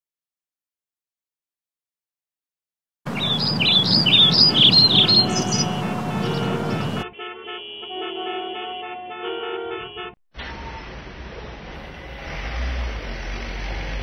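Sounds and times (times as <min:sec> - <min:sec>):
birds chirping: 0:03.1 - 0:07.0
low traffic rumble: 0:03.1 - 0:07.1, 0:10.4 - 0:14.0
car horns honking: 0:03.1 - 0:10.8.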